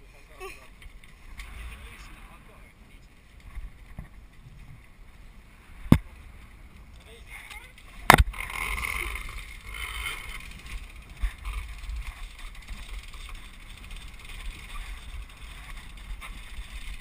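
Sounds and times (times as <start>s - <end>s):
wind buffeting microphone: 3.2s - 7.0s
faint knocks and clicks of gear: 5.9s - 17.0s.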